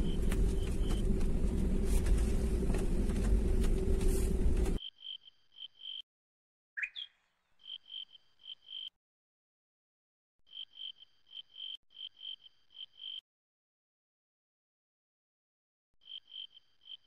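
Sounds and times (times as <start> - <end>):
low rumbling noise: 0.0 - 4.8
insects chirping: 4.8 - 6.0, 6.8 - 8.9, 10.5 - 13.2, 16.0 - 17.0.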